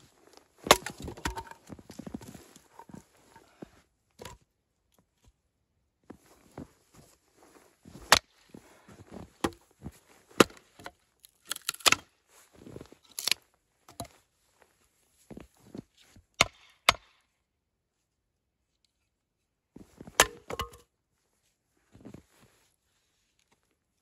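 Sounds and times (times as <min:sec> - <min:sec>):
sharp knocks and cracks: 0:00.6 - 0:01.6, 0:11.5 - 0:12.0, 0:16.4 - 0:17.2, 0:20.1 - 0:20.8.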